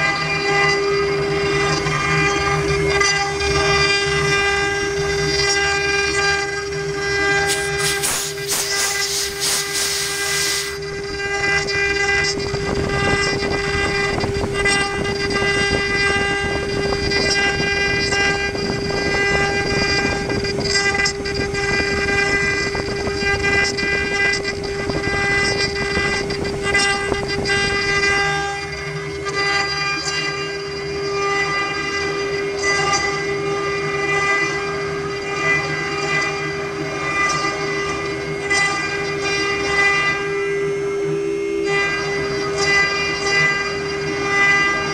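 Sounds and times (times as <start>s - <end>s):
router spindle whine: 0.0s - 44.9s
bit cutting wood rasp: 5.2s - 10.8s
loud hiss: 7.4s - 10.8s.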